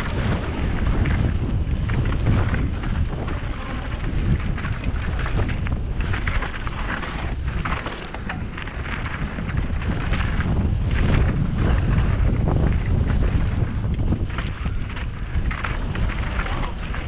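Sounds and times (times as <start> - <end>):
bike rattling over rough trail: 0.0 - 17.0
wind buffeting microphone: 0.0 - 17.0.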